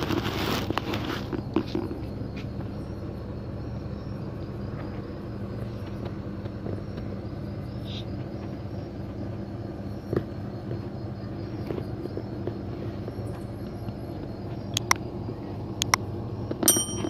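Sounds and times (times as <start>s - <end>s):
faint constant hum: 0.0s - 17.0s
low background rumble: 0.0s - 17.0s.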